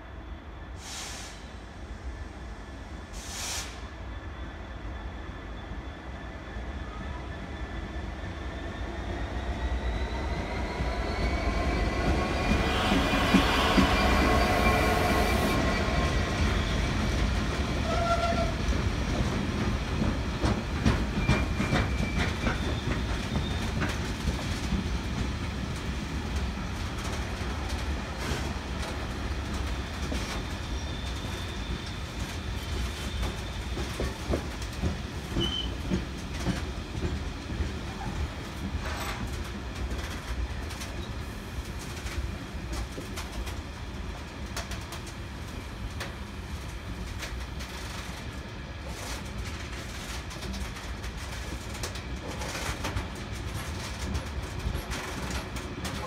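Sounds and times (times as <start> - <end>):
diesel locomotive engine passing: 8.4 - 23.5
train wheels clicking over rail joints: 17.9 - 26.4, 32.8 - 41.1.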